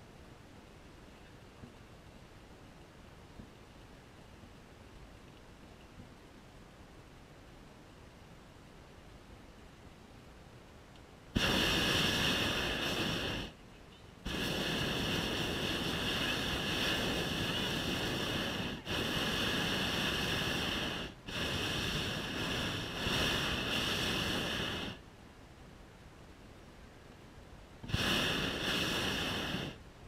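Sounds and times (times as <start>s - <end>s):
propane burner rushing hiss: 11.4s - 13.6s, 14.2s - 25.0s, 27.8s - 29.8s.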